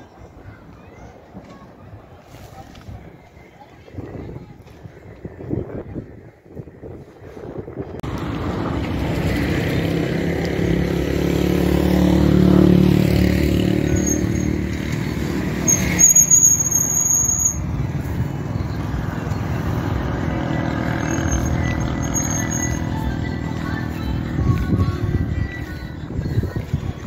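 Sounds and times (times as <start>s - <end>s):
vehicle engine and road noise: 0.0s - 27.0s
high-pitched squeal: 13.0s - 24.3s.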